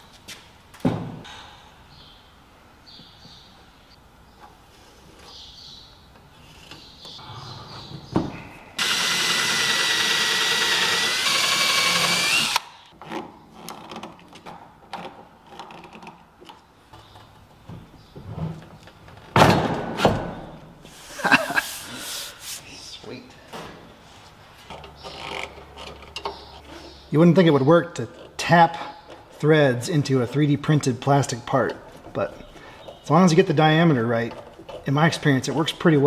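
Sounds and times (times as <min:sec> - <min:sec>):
cordless drill whining: 0:08.8 - 0:12.7.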